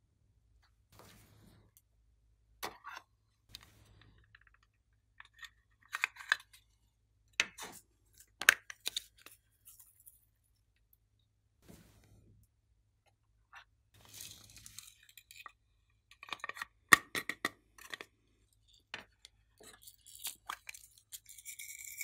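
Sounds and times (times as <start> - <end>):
craft pieces clicking and rustling: 14.0 - 22.0.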